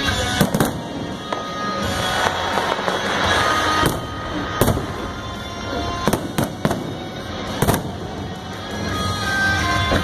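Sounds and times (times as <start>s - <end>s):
fireworks crackling: 0.0s - 10.0s
music playing: 0.0s - 10.0s
firework shells bursting: 0.3s - 8.3s.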